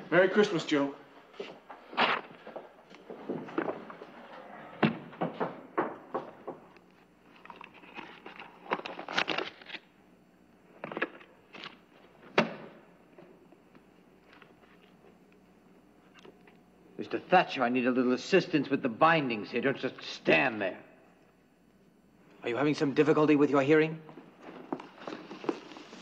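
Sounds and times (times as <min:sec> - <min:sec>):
footsteps on wooden floor: 0:01.2 - 0:06.7
knocks: 0:04.8 - 0:06.7
handling of a book: 0:06.9 - 0:09.8, 0:24.1 - 0:26.0
book binding tearing: 0:07.5 - 0:09.8.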